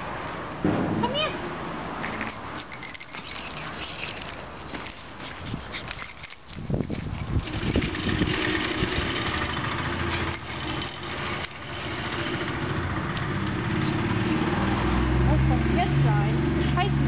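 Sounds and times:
handling knocks and rustles: 1.8 - 12.6
car engine running: 7.2 - 14.0.

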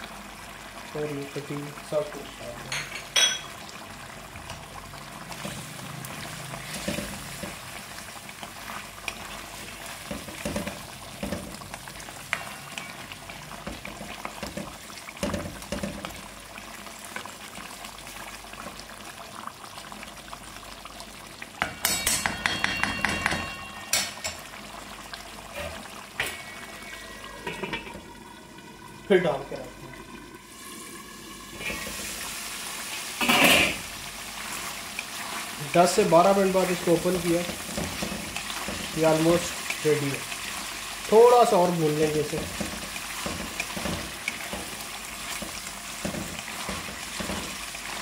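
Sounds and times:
curry bubbling and sizzling: 0.0 - 48.0
spatula scraping a pan: 33.2 - 35.5.

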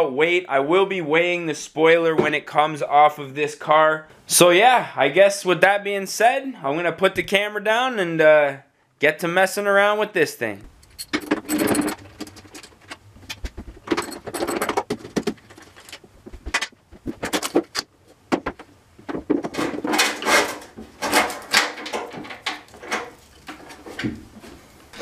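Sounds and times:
knocks and clicks: 10.6 - 23.2.

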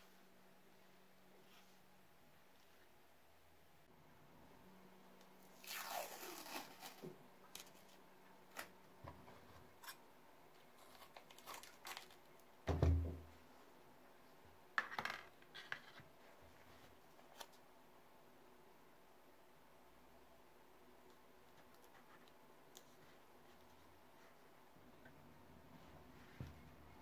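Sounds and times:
masking tape tearing off roll: 5.5 - 7.7.

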